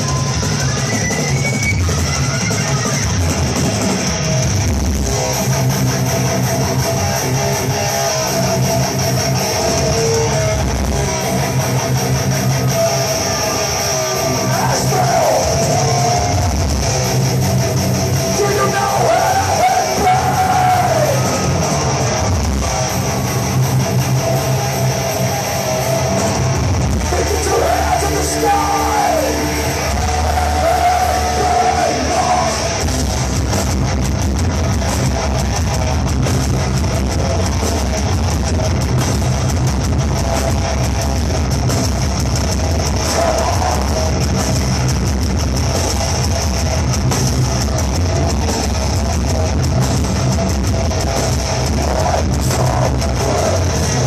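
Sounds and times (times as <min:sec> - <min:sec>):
distorted electric guitars: 0:00.0 - 0:54.0
drums: 0:00.0 - 0:54.0
yelled vocals: 0:11.2 - 0:33.0, 0:42.8 - 0:44.8, 0:51.4 - 0:54.0.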